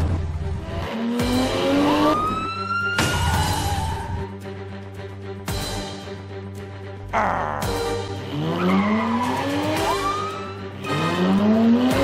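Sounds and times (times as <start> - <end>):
background music: 0.0 - 12.0
car engine revving: 0.4 - 2.4, 7.6 - 12.0.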